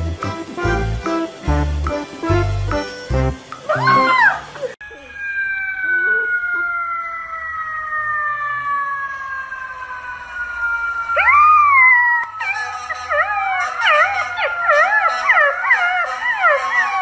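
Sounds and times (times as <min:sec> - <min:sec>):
puppy howling: 0:03.7 - 0:09.1, 0:11.1 - 0:17.0
long falling wail: 0:03.7 - 0:17.0.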